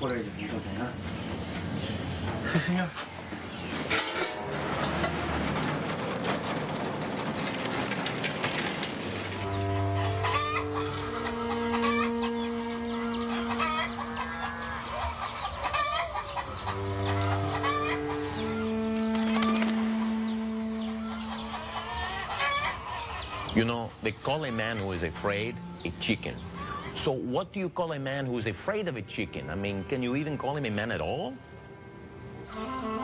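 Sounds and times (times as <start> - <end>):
low music chords: 9.4 - 15.4, 16.5 - 21.8
chickens clucking: 9.4 - 27.6.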